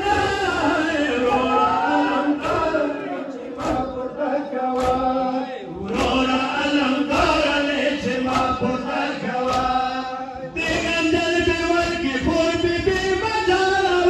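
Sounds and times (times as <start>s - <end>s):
men chanting a lament: 0.0s - 14.0s
hands beating chests: 3.6s - 4.0s, 4.7s - 5.2s, 5.8s - 6.4s, 7.1s - 7.6s, 8.2s - 8.8s, 9.4s - 9.9s.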